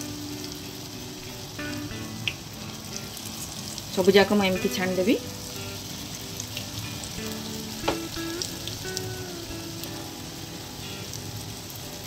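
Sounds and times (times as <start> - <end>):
fritters sizzling in oil: 0.0 - 12.0
soft instrumental music: 0.0 - 12.0
knock: 7.8 - 8.1.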